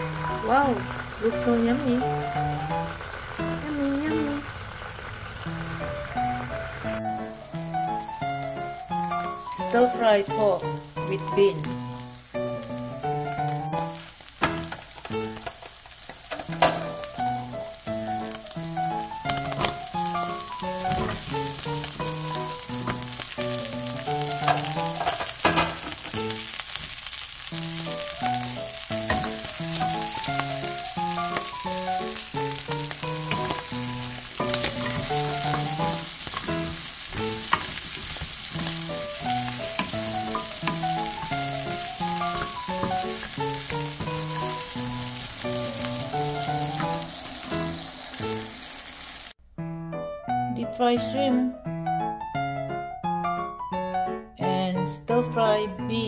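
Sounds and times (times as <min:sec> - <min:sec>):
background music: 0:00.0 - 0:04.5, 0:05.6 - 0:14.1, 0:16.8 - 0:25.8, 0:49.6 - 0:56.0
meat sizzling in a pan: 0:00.0 - 0:49.4.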